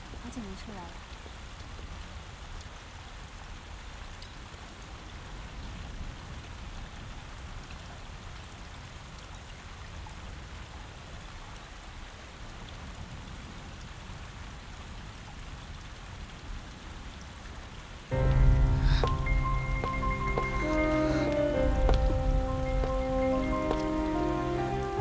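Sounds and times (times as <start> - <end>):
low background noise: 0.0 - 25.0
music: 18.1 - 25.0.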